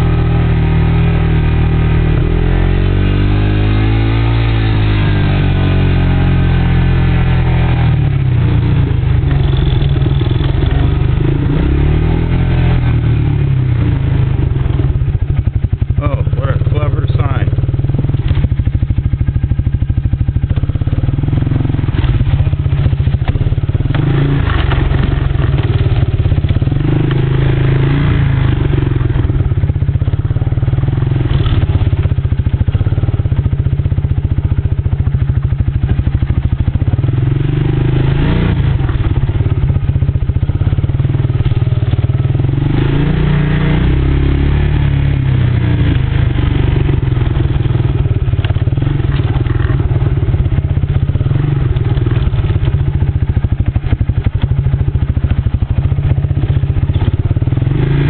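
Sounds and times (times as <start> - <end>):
atv engine running: 0.0 - 58.0
vehicle clattering over bumps: 8.3 - 11.4, 12.8 - 27.3, 45.9 - 57.6.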